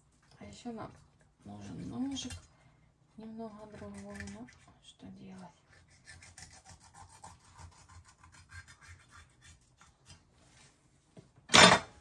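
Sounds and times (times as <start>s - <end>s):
knife sawing through fish: 5.7s - 9.9s.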